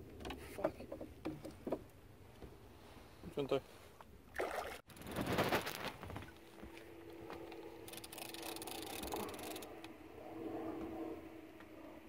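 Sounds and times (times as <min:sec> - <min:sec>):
handling rustle: 0:04.9 - 0:07.6
fishing reel clicking: 0:07.8 - 0:09.7.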